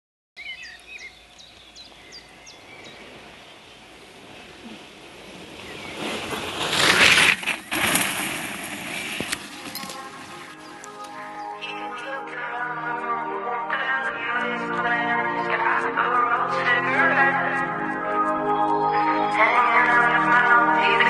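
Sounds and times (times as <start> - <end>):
bird chirps: 0.4 - 3.8, 9.4 - 12.2.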